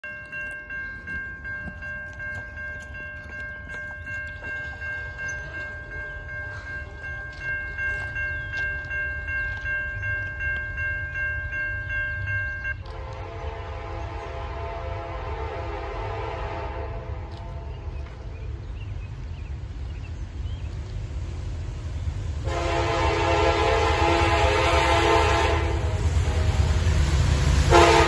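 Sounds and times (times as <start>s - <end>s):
train horn: 12.8s - 18.1s, 22.4s - 28.0s.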